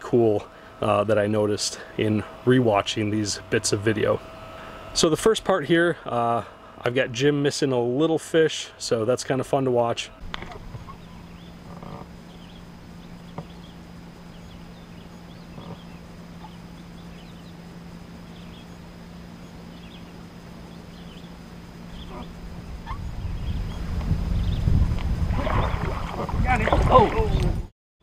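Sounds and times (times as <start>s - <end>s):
steady low hum: 0.0s - 27.7s
birds chirping: 10.0s - 27.6s
low rumble: 19.4s - 27.7s.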